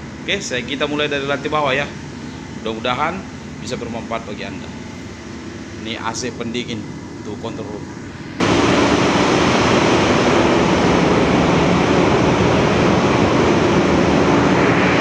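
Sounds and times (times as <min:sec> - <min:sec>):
engine room machinery running: 0:00.0 - 0:15.0
low steady hum: 0:00.0 - 0:15.0.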